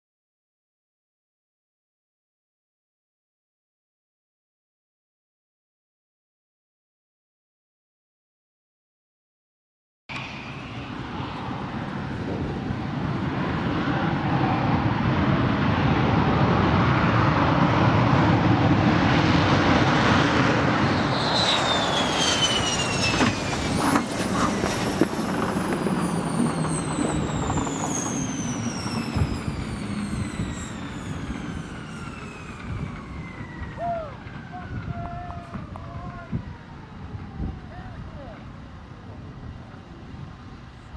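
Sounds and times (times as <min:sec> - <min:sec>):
jet engine running at high power: 0:10.1 - 0:40.9.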